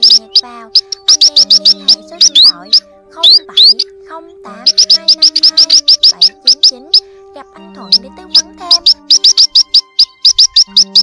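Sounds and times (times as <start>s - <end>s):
birds chirping and whistling: 0.0s - 11.0s.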